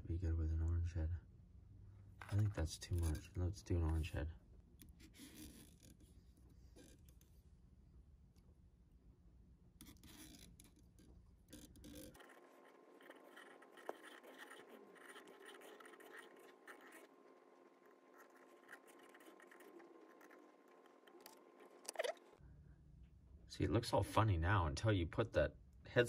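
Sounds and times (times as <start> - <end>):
fingers scratching and rustling thread: 2.2 - 4.2, 4.8 - 7.5, 9.8 - 22.4.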